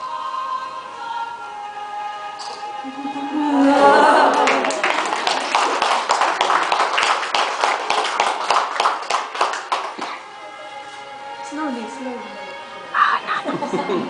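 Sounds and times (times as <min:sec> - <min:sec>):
audience applause: 0:03.2 - 0:10.3
choir singing a hymn: 0:12.6 - 0:14.0.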